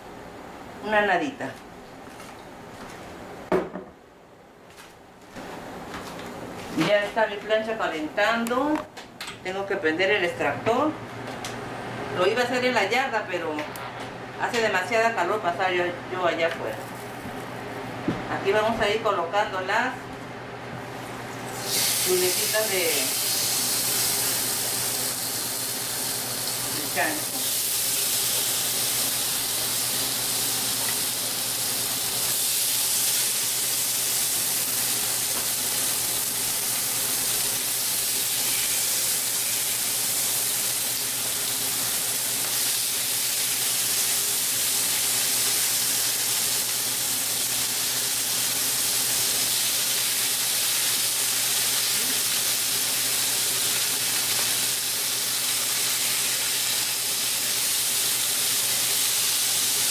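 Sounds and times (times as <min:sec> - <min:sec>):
extractor fan humming: 0:00.0 - 0:59.9
pork chops sizzling on griddle: 0:21.5 - 0:59.9.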